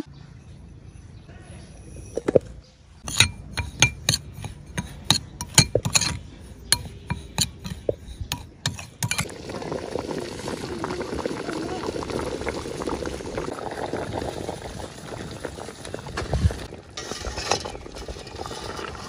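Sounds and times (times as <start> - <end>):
metal spoon clinking against a bowl: 3.0 - 9.3
pot of liquid boiling: 6.8 - 19.0.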